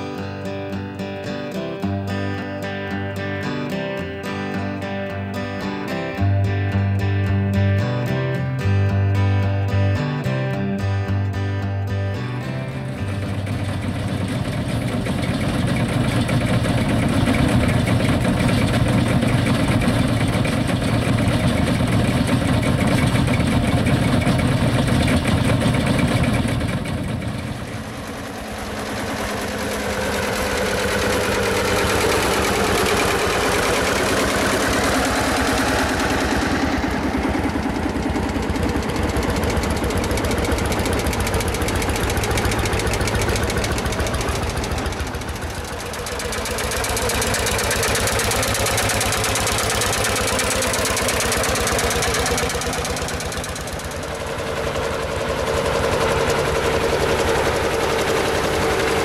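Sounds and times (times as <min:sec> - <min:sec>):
tractor engine running on road: 0:00.0 - 0:59.0
tractor engines chugging: 0:12.2 - 0:59.0.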